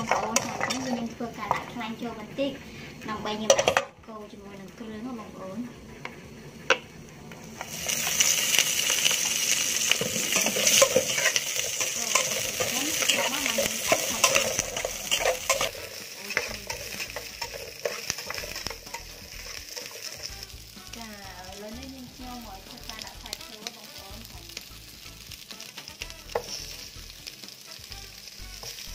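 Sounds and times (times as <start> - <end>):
metal spatula scraping a pot: 0.0 - 1.7, 7.6 - 20.6, 25.7 - 26.9
aromatics sizzling in a pot: 0.0 - 28.9.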